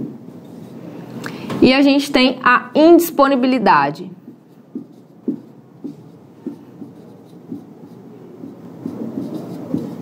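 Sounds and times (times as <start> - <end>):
marker pen writing on whiteboard: 4.2 - 10.0.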